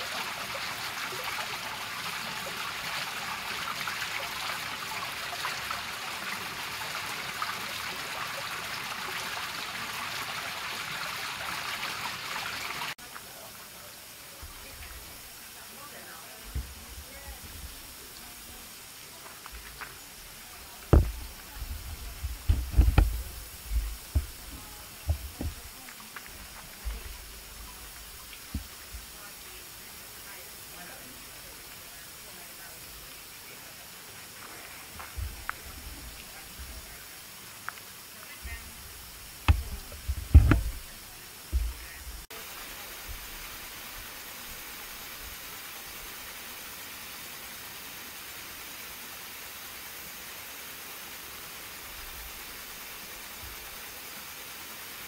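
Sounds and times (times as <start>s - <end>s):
water spray hissing: 0.0s - 55.0s
low thumps: 20.9s - 25.9s, 38.8s - 42.2s.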